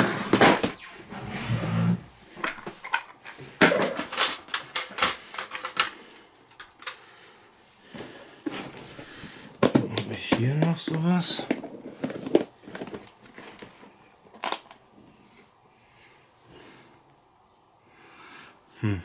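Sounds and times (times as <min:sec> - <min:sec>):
plastic parts clicking and rattling: 0:02.4 - 0:07.0, 0:09.6 - 0:14.8.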